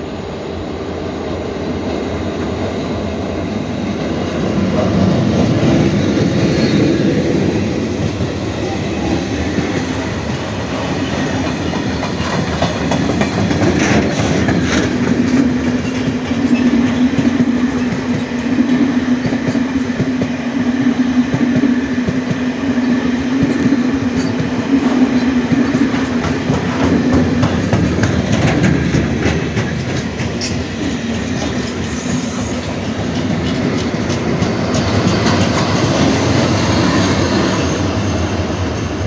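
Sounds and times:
freight train rolling past: 0:00.0 - 0:39.0
wheels clattering over rail joints: 0:08.0 - 0:18.3, 0:25.2 - 0:39.0.

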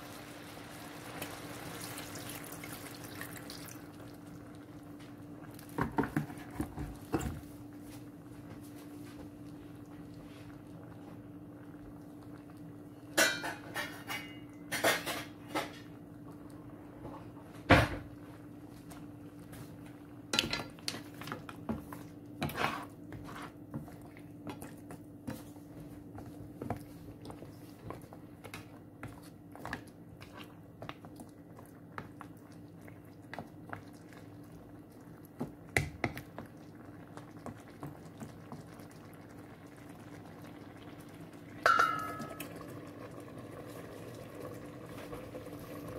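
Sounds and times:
mussel shells clinking in pan: 0:41.6 - 0:42.5.

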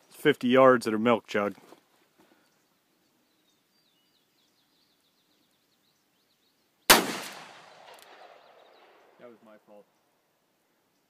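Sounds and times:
revolver gunshot with echo: 0:06.9 - 0:09.0.

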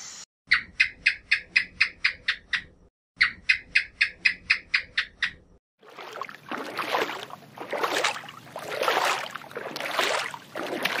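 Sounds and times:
water sloshing and rushing: 0:05.8 - 0:11.0.

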